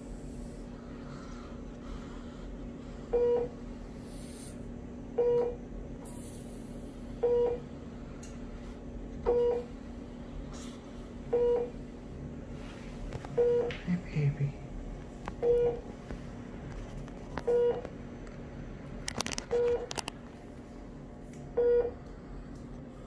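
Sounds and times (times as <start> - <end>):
steady low hum: 0.0 - 23.0
medical alarm short beeps: 3.1 - 3.5, 5.2 - 5.6, 7.2 - 7.6, 11.3 - 11.7, 13.4 - 13.7, 15.4 - 15.8, 21.6 - 21.9.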